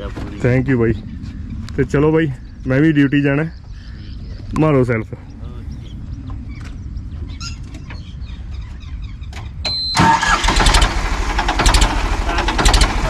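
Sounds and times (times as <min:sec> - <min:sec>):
diesel engine running loudly: 0:10.0 - 0:13.0
starter motor cranking: 0:10.0 - 0:13.0.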